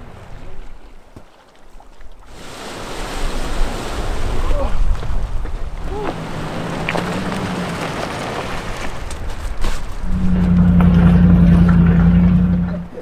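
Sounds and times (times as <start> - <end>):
low motor hum: 5.8 - 13.0.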